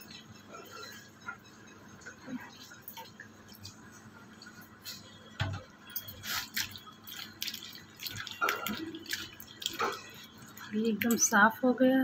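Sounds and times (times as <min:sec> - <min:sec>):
water splashes and drips: 0:06.2 - 0:11.3.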